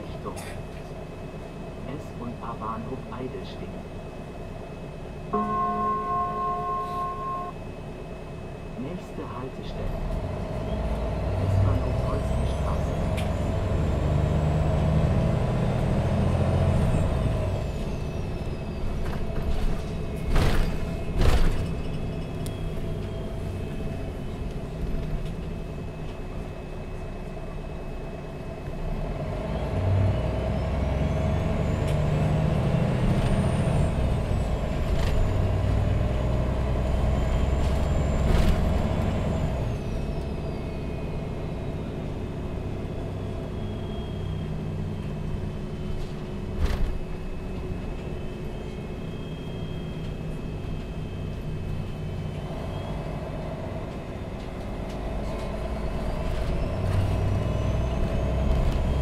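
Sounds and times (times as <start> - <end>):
bus diesel engine: 0.0 - 59.0
thin high whine: 5.3 - 7.7.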